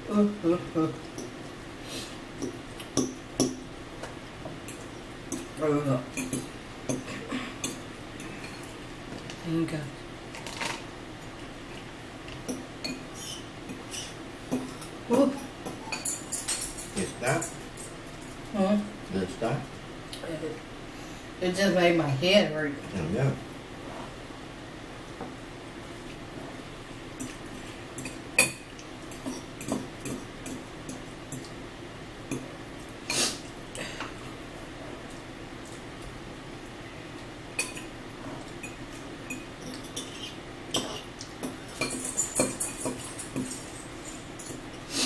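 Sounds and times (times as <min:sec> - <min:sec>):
forks clinking against bowls: 0:04.6 - 0:08.7, 0:12.5 - 0:18.3, 0:27.2 - 0:31.5, 0:37.6 - 0:37.9, 0:38.6 - 0:44.6
fork clinking against bowl: 0:38.6 - 0:44.6.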